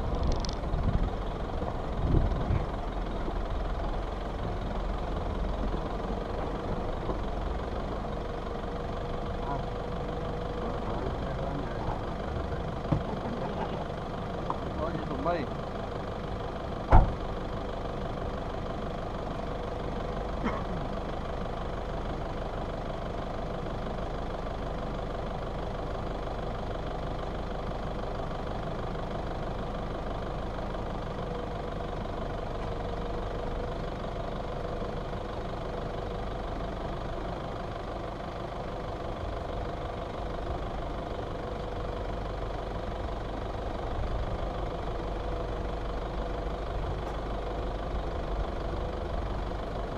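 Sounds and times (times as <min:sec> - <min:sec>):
car engine idling: 0:00.0 - 0:49.9.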